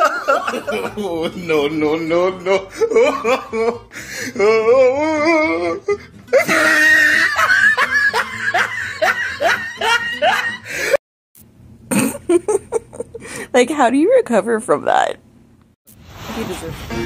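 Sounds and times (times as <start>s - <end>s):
person laughing hard: 0.0s - 11.0s, 11.9s - 13.4s.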